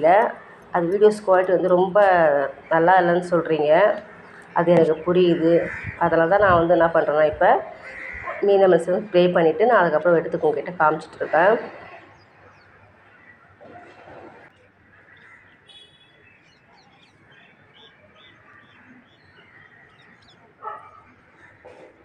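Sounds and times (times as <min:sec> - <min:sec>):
dog barking: 0:08.2 - 0:08.4, 0:20.6 - 0:21.1.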